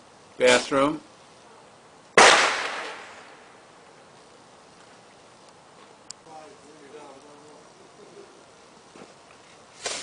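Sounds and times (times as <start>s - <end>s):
outdoor background noise: 0.0s - 10.0s
firecracker blast echo: 2.1s - 3.9s.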